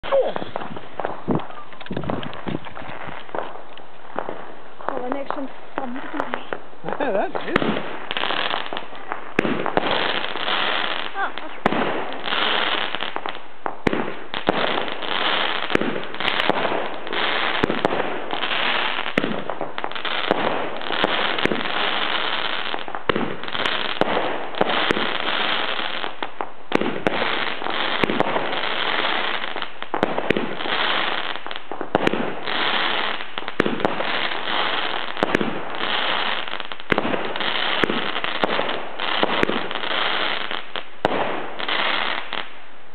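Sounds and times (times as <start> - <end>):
firework pops and bursts: 0.0 - 42.7
firework hiss and crackle: 0.0 - 42.9.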